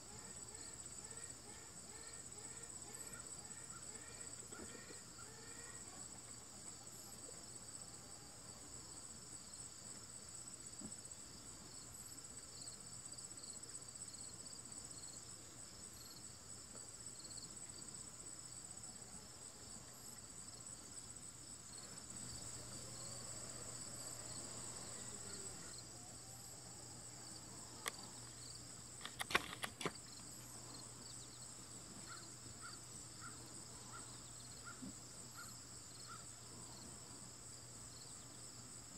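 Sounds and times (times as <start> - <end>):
high-pitched insect chorus: 17.2 - 38.9
sharp clicks: 29.0 - 30.0.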